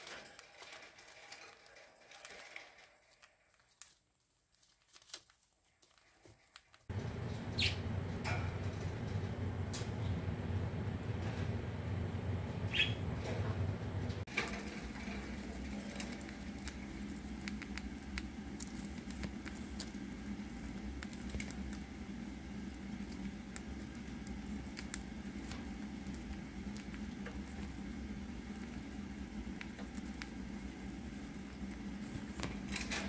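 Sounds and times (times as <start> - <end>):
beaks pecking at seed: 5.8 - 8.2, 12.7 - 13.0, 14.3 - 33.0
budgie chirp: 7.5 - 7.9, 12.7 - 13.0.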